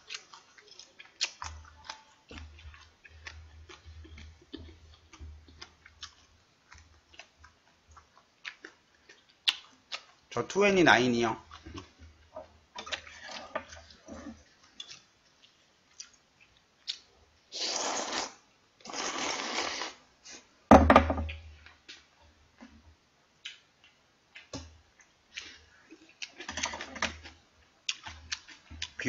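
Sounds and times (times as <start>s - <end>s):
chewing and utensil clicks: 14.7s - 17.1s
noodles slurped: 17.5s - 20.0s.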